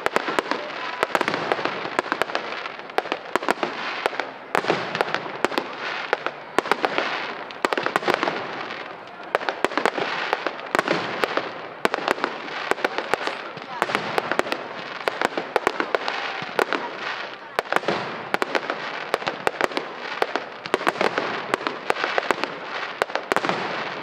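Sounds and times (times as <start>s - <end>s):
fireworks crackling: 0.0s - 24.0s
firework shells bursting: 9.5s - 16.9s.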